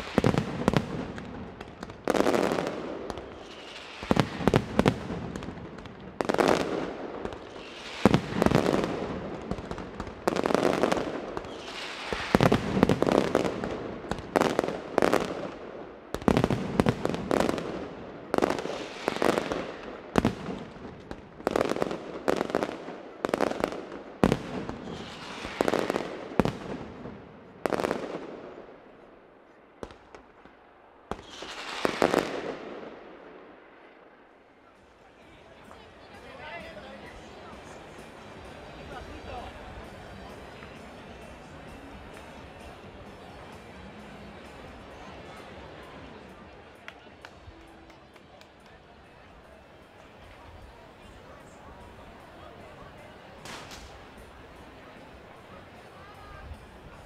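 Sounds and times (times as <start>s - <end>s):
firecrackers banging: 49.8s - 57.0s.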